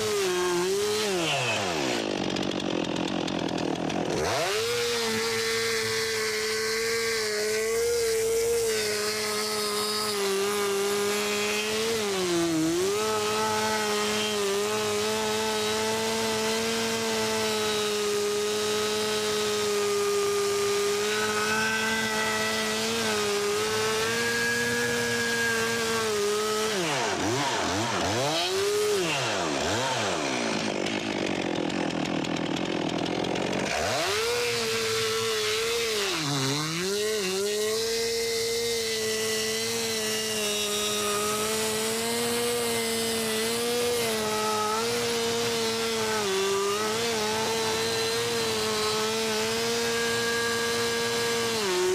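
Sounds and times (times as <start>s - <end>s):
chainsaw cutting wood: 0.0s - 51.9s.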